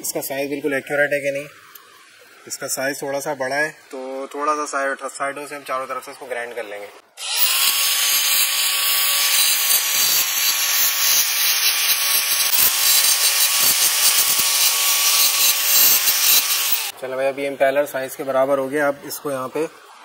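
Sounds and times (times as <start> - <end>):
angle grinder motor whine: 7.2 - 16.9
grinding disc on sheet metal: 7.4 - 16.9.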